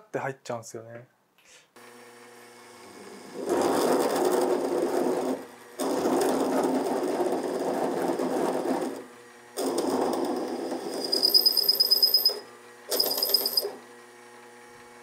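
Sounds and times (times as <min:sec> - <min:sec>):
rough grinding chatter: 0:03.0 - 0:09.0.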